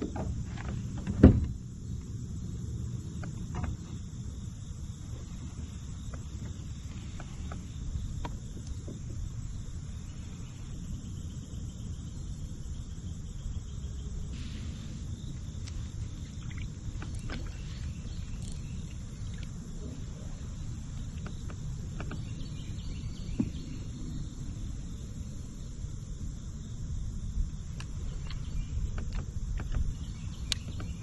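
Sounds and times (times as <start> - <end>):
high insect drone: 0.0 - 31.0
low river rumble: 0.0 - 31.0.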